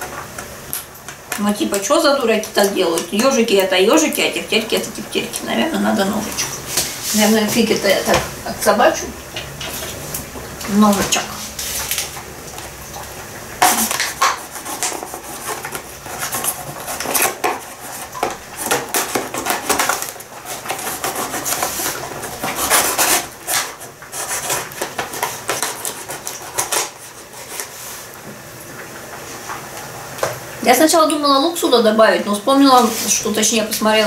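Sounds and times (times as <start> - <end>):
knife scraping plastic tray: 13.6 - 27.8.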